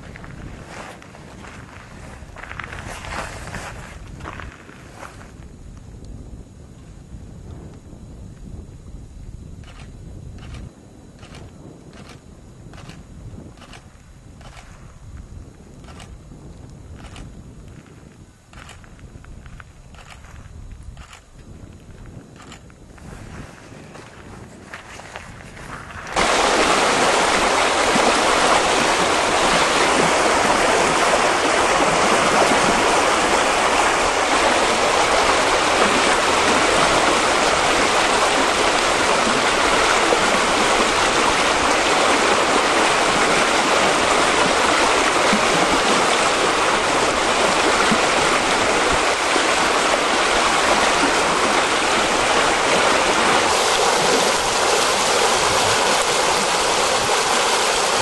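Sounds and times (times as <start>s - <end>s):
floodwater rushing: 26.1s - 58.0s.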